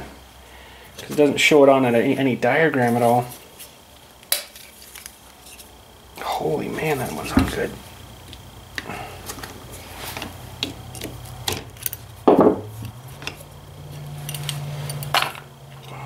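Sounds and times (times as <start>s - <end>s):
steady low hum: 0.0s - 16.0s
metal parts clicking and clinking: 10.9s - 12.1s, 14.2s - 16.0s.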